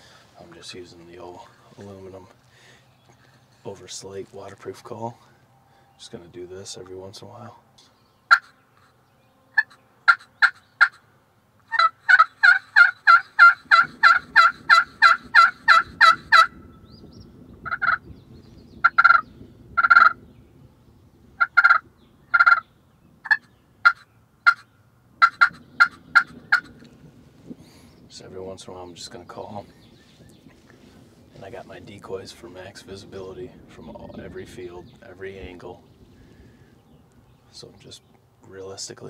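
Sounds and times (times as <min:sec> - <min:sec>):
turkey call yelps: 0:08.3 - 0:08.6, 0:09.6 - 0:11.0, 0:11.6 - 0:16.6, 0:17.6 - 0:18.0, 0:18.8 - 0:20.2, 0:21.4 - 0:26.8.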